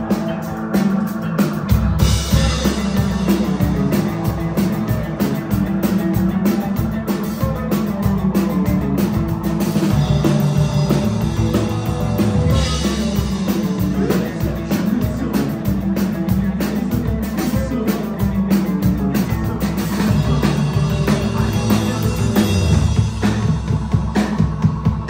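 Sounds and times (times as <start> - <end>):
drum kit fast beat: 0.0 - 25.0
electric bass line: 0.0 - 25.0
keyboard: 0.0 - 25.0.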